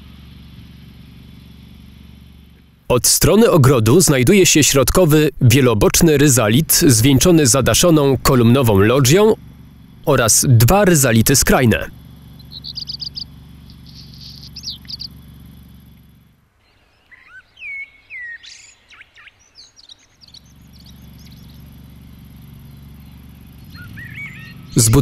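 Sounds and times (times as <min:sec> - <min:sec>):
songbirds chirping and singing: 0:12.4 - 0:15.2, 0:16.6 - 0:21.9, 0:22.6 - 0:25.0.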